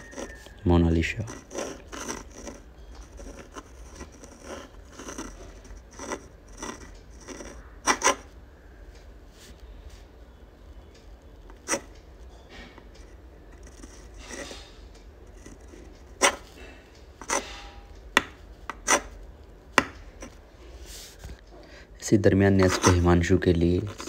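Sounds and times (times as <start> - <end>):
pen scratching on paper: 0.0 - 0.5, 1.2 - 8.3, 11.5 - 12.0, 13.0 - 16.6, 17.2 - 17.6, 18.7 - 19.2, 22.5 - 24.0.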